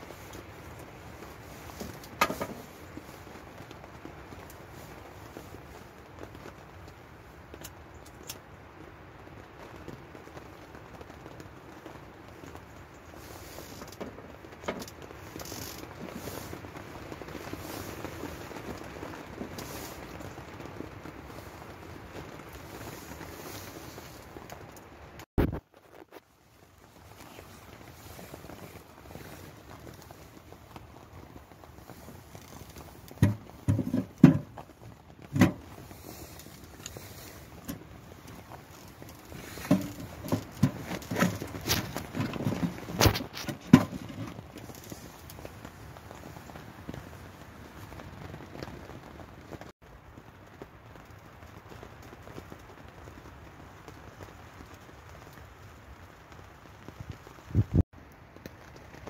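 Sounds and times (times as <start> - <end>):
heavy rain on a tent: 0.0 - 59.0
logs knocking against stove: 33.2 - 34.6.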